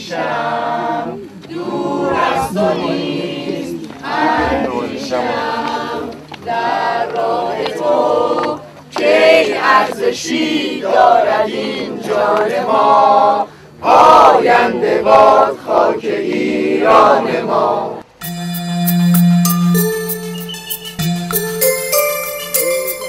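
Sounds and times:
mixed choir singing: 0.0s - 18.1s.

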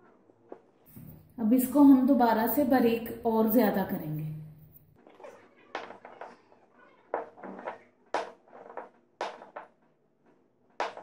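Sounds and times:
knocks on stone countertop: 10.8s - 11.0s.

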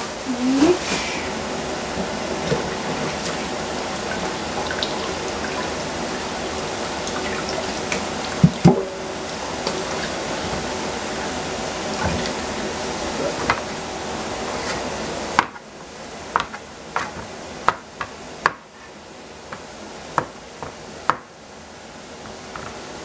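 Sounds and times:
steady hiss: 0.0s - 15.2s.

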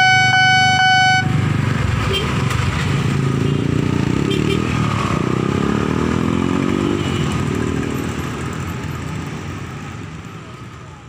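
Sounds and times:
car engines accelerating: 1.3s - 10.2s
motorcycle engine accelerating: 1.4s - 9.2s.

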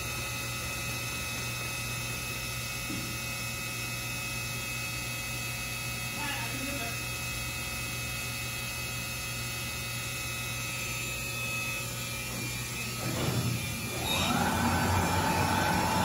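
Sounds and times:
router spindle whine: 7.9s - 16.0s
machine humming: 11.5s - 16.0s.

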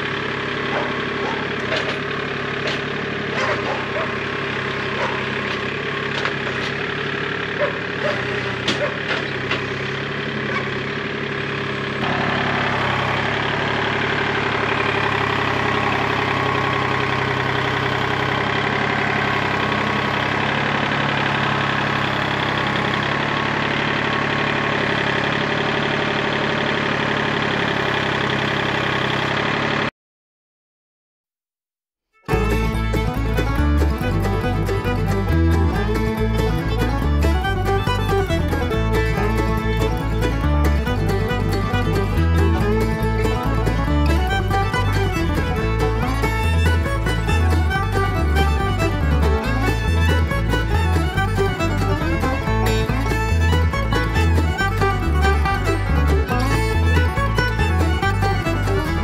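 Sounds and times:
tractor diesel engine running: 0.0s - 29.9s, 32.3s - 59.0s
sharp knocks and clicks: 0.8s - 3.8s, 5.1s - 6.8s, 8.5s - 9.8s.

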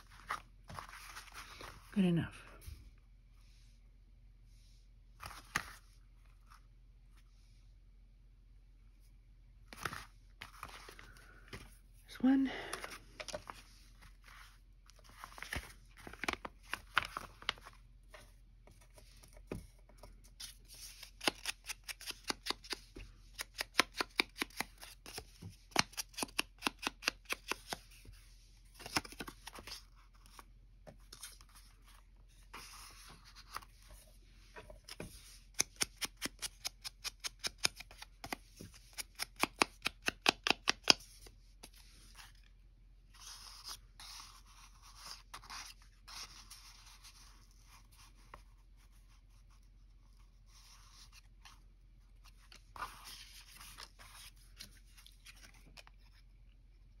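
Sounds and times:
scissors snipping paper: 20.8s - 27.8s, 35.5s - 41.0s.

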